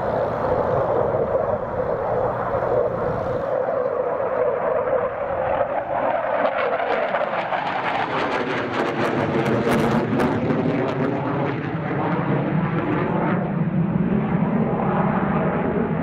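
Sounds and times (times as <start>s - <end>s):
crackling jet passing by: 0.0s - 16.0s
jet engine rushing: 0.0s - 16.0s.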